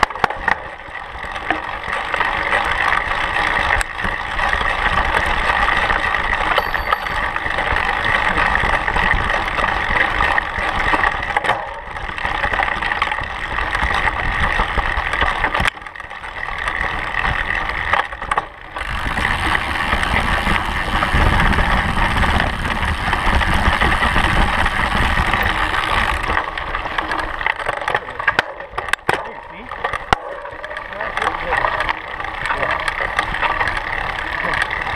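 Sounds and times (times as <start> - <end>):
bike rattling: 0.0 - 34.9
bike tyres rolling on dirt: 0.0 - 34.9.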